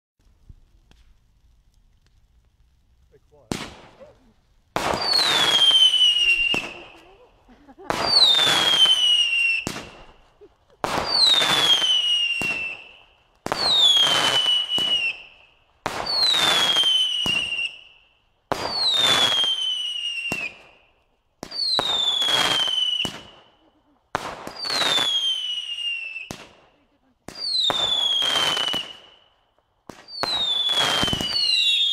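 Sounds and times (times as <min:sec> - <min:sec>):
crackling hiss: 0:00.2 - 0:31.9
firework shots bursting: 0:03.0 - 0:17.9, 0:18.5 - 0:20.8, 0:21.4 - 0:29.3, 0:29.9 - 0:31.9
falling firework whistle: 0:04.8 - 0:07.1, 0:07.8 - 0:10.2, 0:10.8 - 0:20.9, 0:21.5 - 0:23.6, 0:24.5 - 0:26.5, 0:27.3 - 0:29.3, 0:30.0 - 0:31.9.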